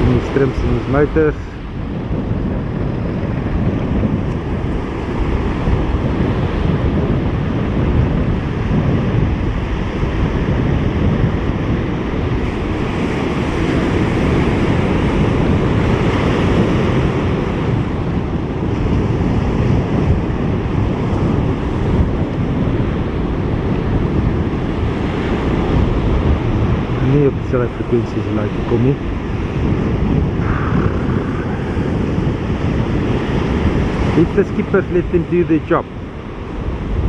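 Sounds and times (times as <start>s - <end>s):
wind buffeting microphone: 0.0s - 37.0s
surf breaking: 24.8s - 35.0s.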